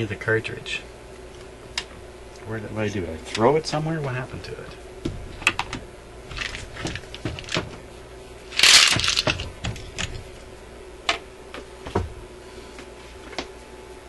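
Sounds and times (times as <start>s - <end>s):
scraping rustle: 8.5s - 9.5s.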